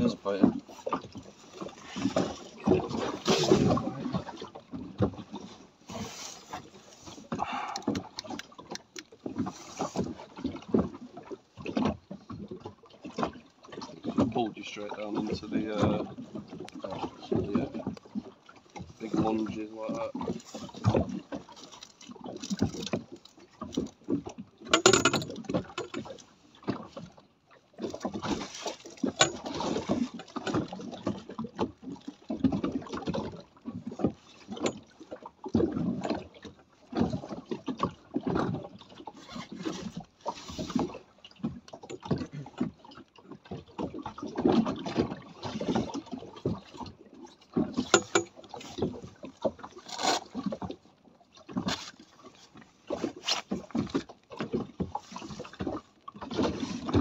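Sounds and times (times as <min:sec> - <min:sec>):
water slapping against boat hull: 0:00.0 - 0:57.0
sharp knocks on hull: 0:47.6 - 0:49.0.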